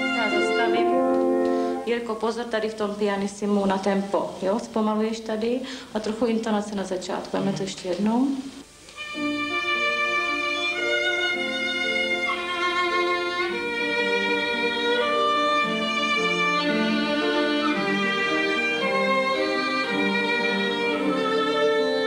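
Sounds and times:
violin playing slow melody: 0.0 - 2.0, 8.9 - 22.0.

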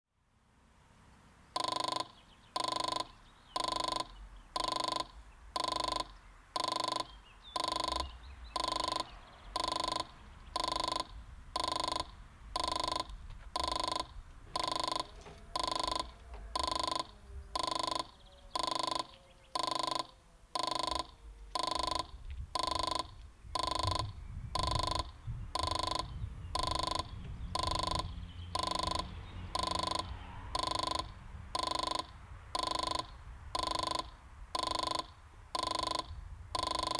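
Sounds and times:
crossing warning bell dinging: 1.6 - 36.9
low rumble: 21.2 - 31.6.

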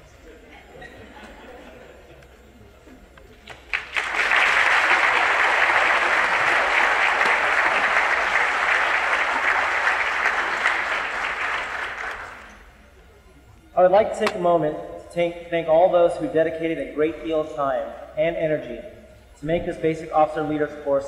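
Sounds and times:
audience clapping: 3.5 - 12.6.

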